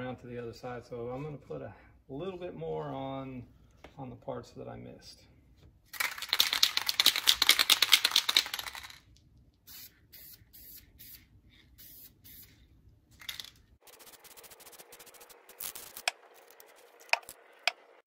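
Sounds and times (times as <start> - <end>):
spray can ball rattling: 5.9 - 9.1, 9.7 - 12.6, 13.2 - 17.8
spray paint hissing: 9.7 - 12.6, 13.8 - 17.4.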